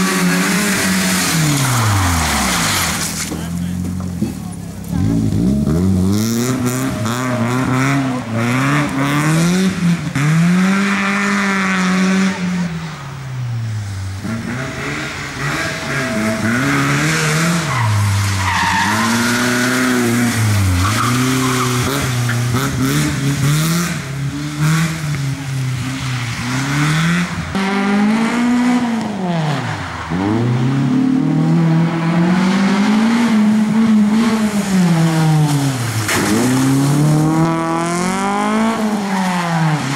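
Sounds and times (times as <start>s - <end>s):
rally car engine revving: 0.0s - 39.9s
tyres squealing: 15.8s - 22.5s.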